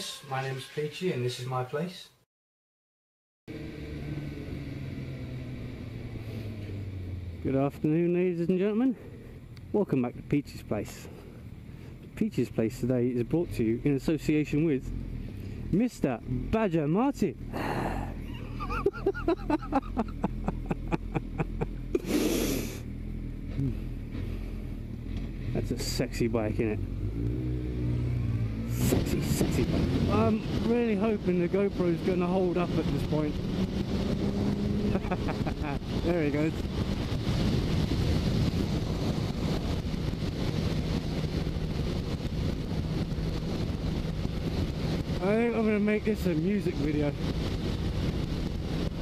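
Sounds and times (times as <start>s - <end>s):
motorcycle engine hum: 3.5s - 49.0s
motorcycle engines idling: 16.8s - 22.1s
wind noise on microphone: 28.2s - 49.0s.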